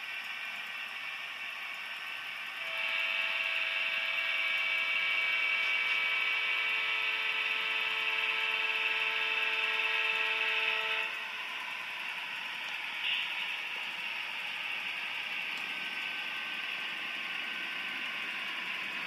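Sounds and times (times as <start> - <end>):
model train horn blast: 2.6 - 11.2.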